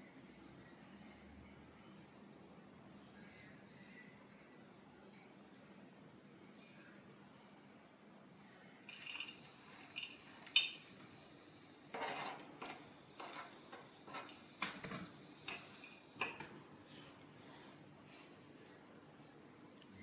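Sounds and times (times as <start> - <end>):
cutlery clinking on a plate: 8.9 - 10.9.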